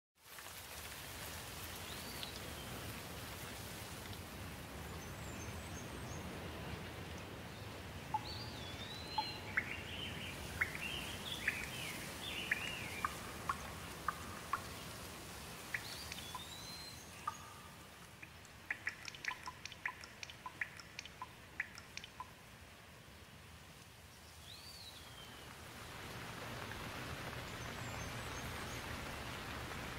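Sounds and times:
rain falling on foliage: 0.2 - 29.9
bird chirping: 8.1 - 14.7, 15.7 - 22.3
water drops ticking: 8.1 - 14.8, 15.6 - 22.5.

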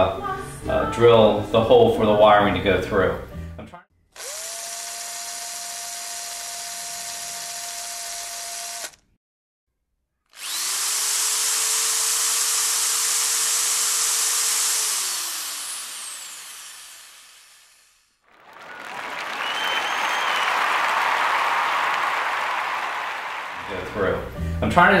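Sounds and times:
cordless drill boring into steel: 4.2 - 9.1, 10.3 - 18.2.

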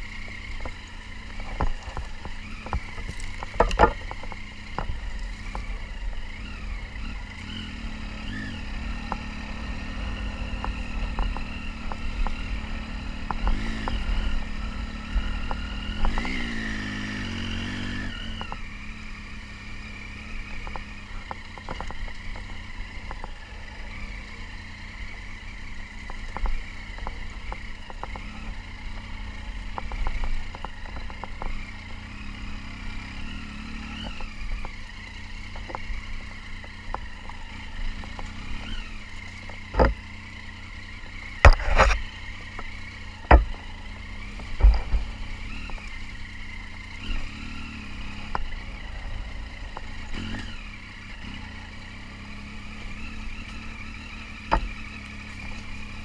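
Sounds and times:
motorcycle engine revving: 0.0 - 56.0
knocks and clatter from bike: 0.2 - 56.0.

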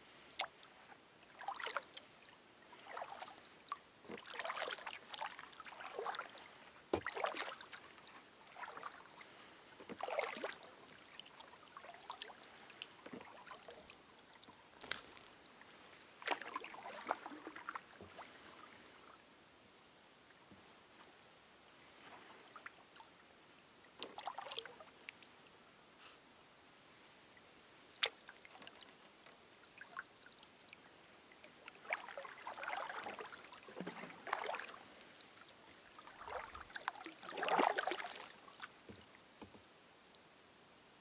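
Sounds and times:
kayak paddle splashing: 0.0 - 19.1, 24.0 - 25.0, 31.3 - 39.6.

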